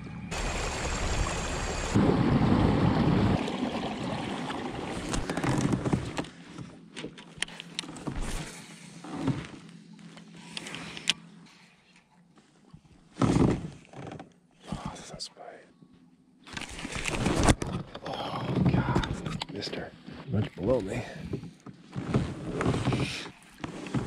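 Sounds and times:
low rumble: 0.0 - 3.9
water rushing along hull: 0.0 - 6.3.

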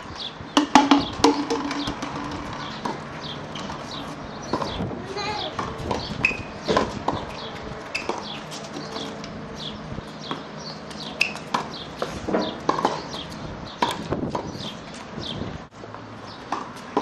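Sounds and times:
ball bouncing on hard court: 0.5 - 3.9
tennis ball struck by racquets: 0.5 - 4.8, 5.4 - 9.2, 10.2 - 15.0, 15.9 - 17.0.

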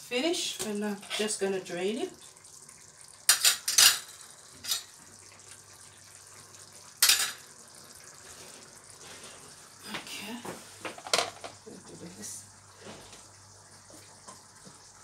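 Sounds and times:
metal utensils and pot clattering: 0.6 - 1.4, 3.3 - 5.0, 7.0 - 7.4, 10.9 - 11.6.

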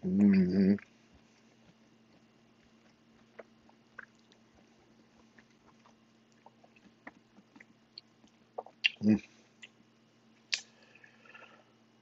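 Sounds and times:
chewing: 0.8 - 9.0.

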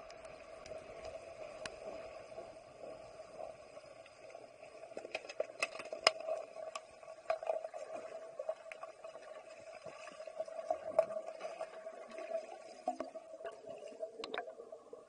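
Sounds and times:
steady underwater hum: 0.0 - 15.0
sticks and puck clacking underwater: 4.8 - 8.0, 14.2 - 14.5.

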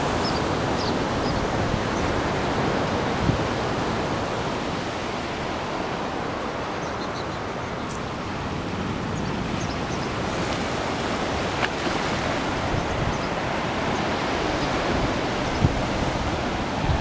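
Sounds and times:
ocean waves washing onto beach: 0.0 - 17.0
wind buffeting microphone: 8.0 - 17.0.

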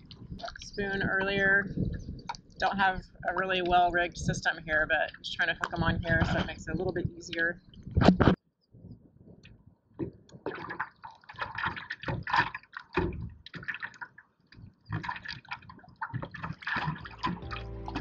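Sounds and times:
waves splashing against paddle board: 10.5 - 14.1, 14.9 - 18.0.

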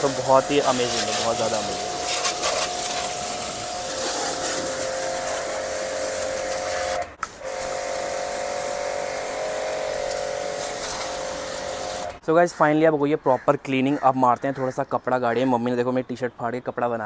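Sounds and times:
high-pressure water jet hissing: 0.0 - 12.2
pressure washer motor humming: 0.0 - 12.2.

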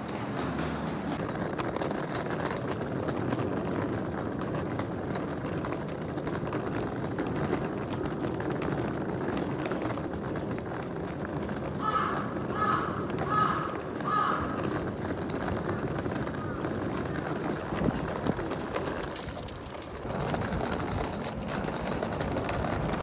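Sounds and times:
suitcase wheels rolling on pavement: 0.0 - 23.0.

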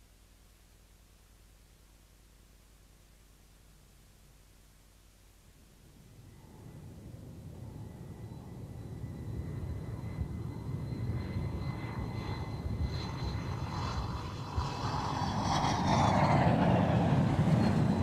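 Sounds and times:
jet whine and rumble: 5.6 - 18.0.

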